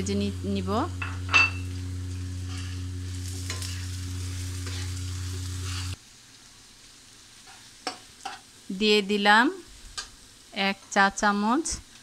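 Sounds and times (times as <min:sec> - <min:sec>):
steady low hum: 0:00.0 - 0:06.0
vegetables sizzling: 0:00.0 - 0:12.0
metal spatula scraping wok: 0:02.4 - 0:06.0.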